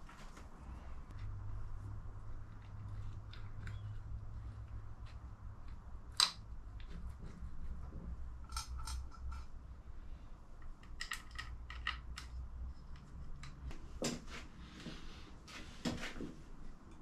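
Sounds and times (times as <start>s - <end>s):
low steady hum: 0.0s - 17.0s
small engine parts clicking: 8.4s - 9.5s, 10.6s - 13.6s.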